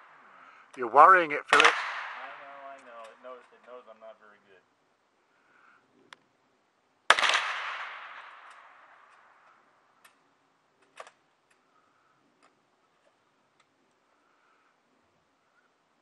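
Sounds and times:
rifle shot echo: 1.5s - 3.0s, 7.1s - 9.4s.

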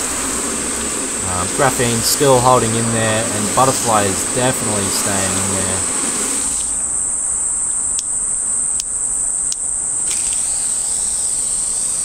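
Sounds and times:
hose mist nozzle spray hiss: 0.0s - 6.8s, 10.1s - 12.0s
high-pitched insect chorus: 0.0s - 12.0s.

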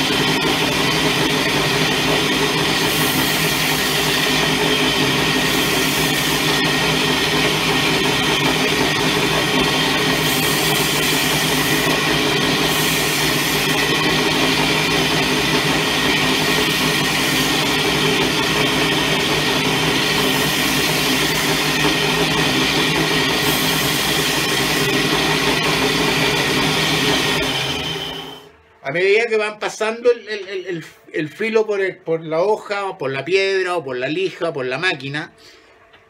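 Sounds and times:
belt sander running: 0.0s - 28.6s.

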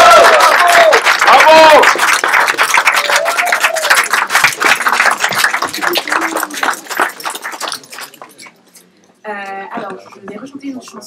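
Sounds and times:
crowd applauding: 0.0s - 8.6s.

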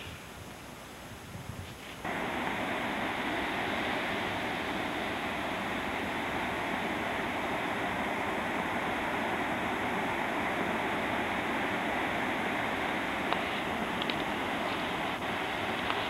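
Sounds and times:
water rushing from dam outlets: 2.0s - 16.0s.

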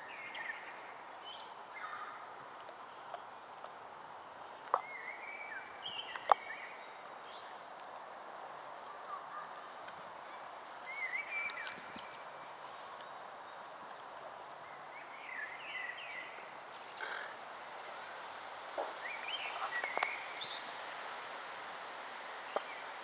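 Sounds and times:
small birds chirping: 4.4s - 8.0s, 8.8s - 18.2s, 18.8s - 21.2s, 22.4s - 23.0s.

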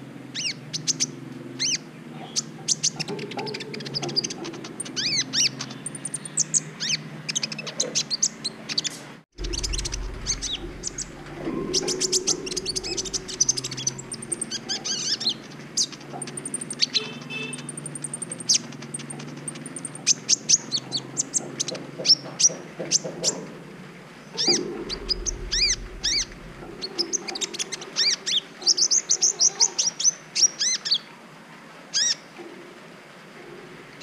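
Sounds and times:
sunbird twittering song: 0.3s - 22.2s.

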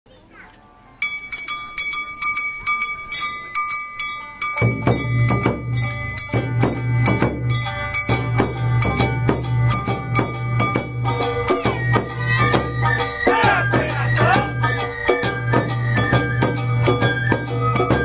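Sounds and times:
metal gong struck rhythmically: 4.5s - 15.7s
drums and band playing: 4.6s - 18.0s.

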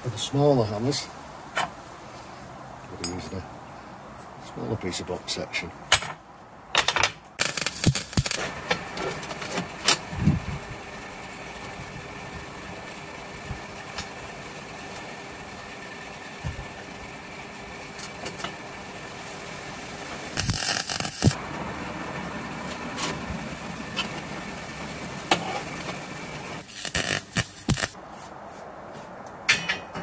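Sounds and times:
engine-like hum: 7.4s - 30.0s
metal clanks: 29.5s - 30.0s
metal clinking and scraping on steel: 29.5s - 30.0s.

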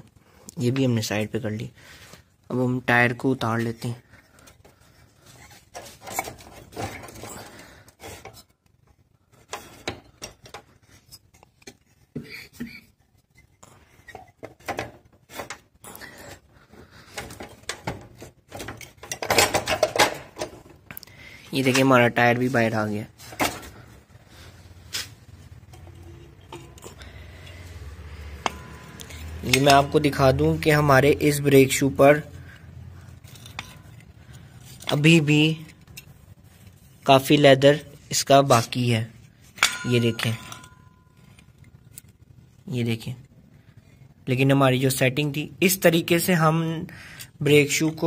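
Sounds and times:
low steady hum: 3.9s - 44.3s
metal clinks and knocks: 17.1s - 20.9s, 25.5s - 30.6s, 39.4s - 41.9s
metal parts clicking: 17.1s - 21.0s, 32.4s - 36.7s.

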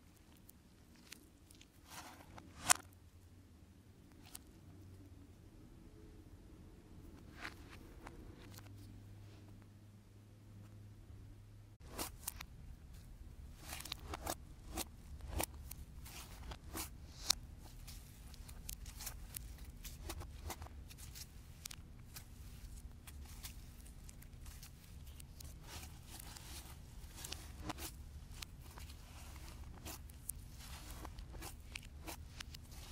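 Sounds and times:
slime crackling and tearing: 13.5s - 32.9s.

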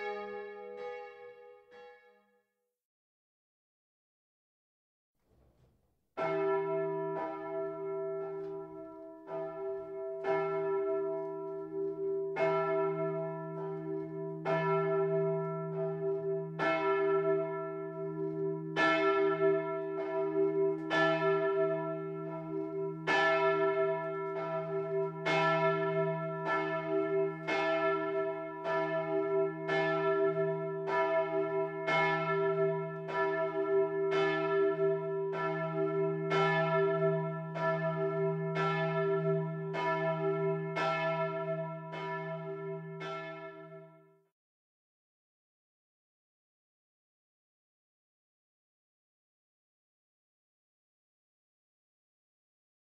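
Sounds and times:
large church bell ringing: 0.0s - 2.1s, 6.2s - 44.0s.

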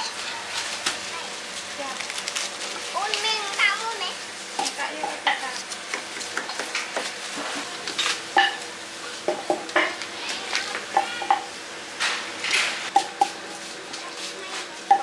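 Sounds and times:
metal bowls and utensils clattering: 4.6s - 8.7s.

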